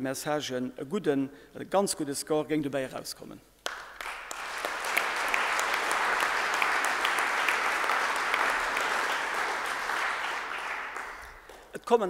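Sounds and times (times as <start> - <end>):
audience applauding: 3.6 - 11.8.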